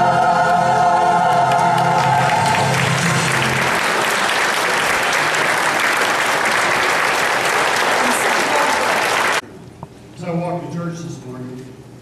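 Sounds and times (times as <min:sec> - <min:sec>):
choir singing chord: 0:00.0 - 0:04.0
congregation applauding: 0:01.2 - 0:09.4.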